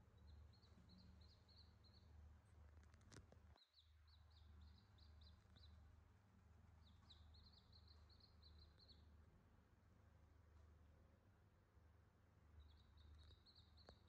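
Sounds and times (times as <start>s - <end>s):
chicks peeping: 0.1s - 6.0s, 6.6s - 9.1s, 12.6s - 14.0s.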